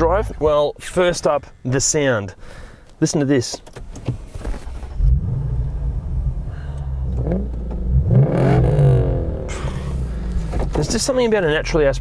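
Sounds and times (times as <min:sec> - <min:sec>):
car engine idling and revving: 0:03.8 - 0:12.0.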